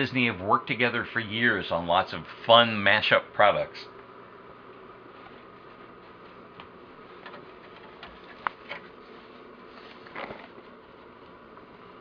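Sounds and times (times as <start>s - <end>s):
faint hiss and hum: 0.0s - 12.0s
faint clicks and knocks: 6.2s - 9.0s.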